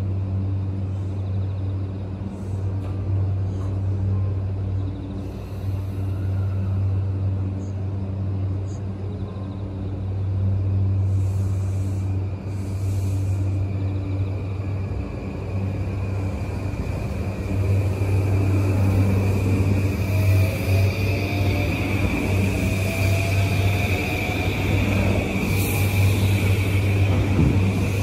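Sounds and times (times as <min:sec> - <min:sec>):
electric train humming and rumbling: 0:00.0 - 0:28.0
train hissing: 0:05.1 - 0:07.4, 0:10.7 - 0:28.0.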